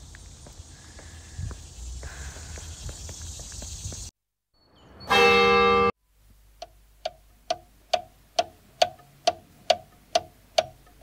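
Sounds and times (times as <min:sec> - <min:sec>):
clock ticking: 0:06.6 - 0:11.0.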